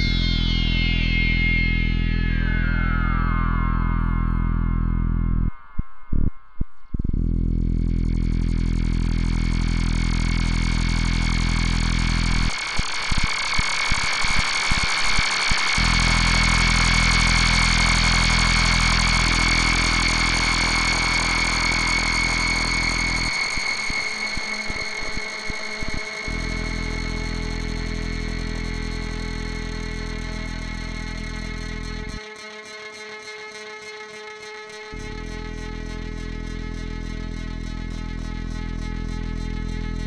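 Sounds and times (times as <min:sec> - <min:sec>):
bright high synth tone: 0:00.0 - 0:06.1
synthesizer drone: 0:00.0 - 0:32.6, 0:34.9 - 0:40.0.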